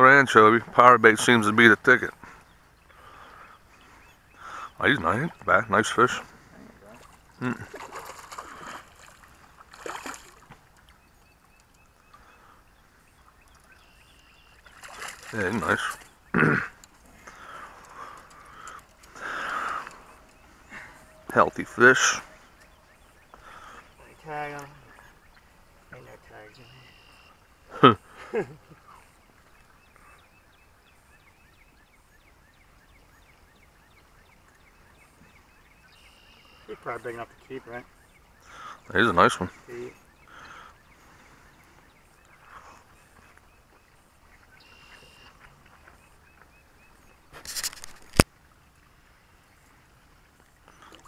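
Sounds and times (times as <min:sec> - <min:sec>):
faint outdoor ambience: 0:00.0 - 0:51.0
faint water sounds: 0:00.0 - 0:51.0
fish splashing at surface: 0:07.7 - 0:10.5, 0:14.7 - 0:15.4.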